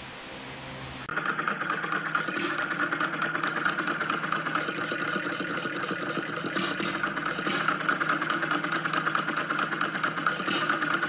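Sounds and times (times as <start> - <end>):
gas engine clattering: 1.1 - 11.0.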